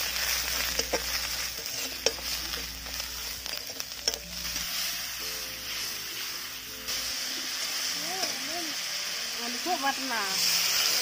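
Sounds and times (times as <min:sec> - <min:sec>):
spices sizzling in oil: 0:00.0 - 0:11.0
metal spatula scraping a pan: 0:00.1 - 0:08.5.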